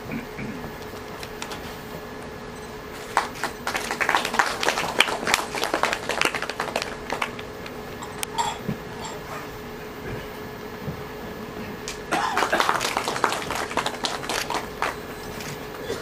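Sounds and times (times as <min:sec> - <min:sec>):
faint steady hum: 0:00.0 - 0:16.0
small group clapping: 0:03.0 - 0:07.7, 0:11.9 - 0:15.1.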